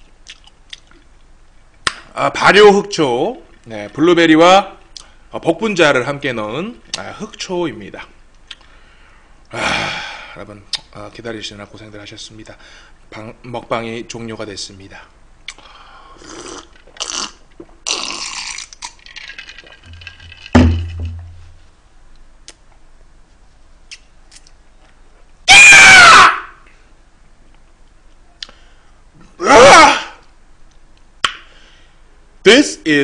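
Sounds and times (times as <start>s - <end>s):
thump: 20.6s - 21.6s
man crying out: 25.5s - 26.6s, 29.4s - 30.2s.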